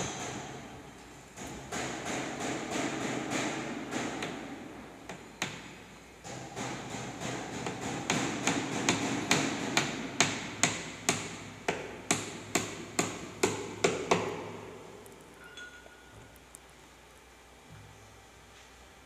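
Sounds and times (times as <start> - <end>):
hammer driving nails into wood: 1.4 - 4.5, 6.2 - 14.4.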